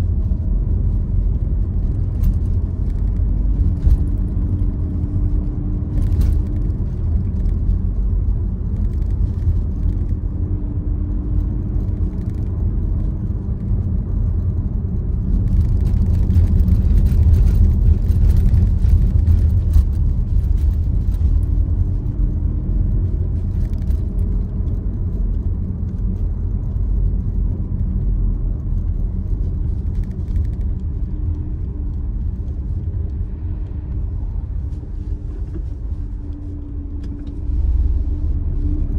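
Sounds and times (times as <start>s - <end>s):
car engine and tyres rumbling: 0.0s - 38.9s.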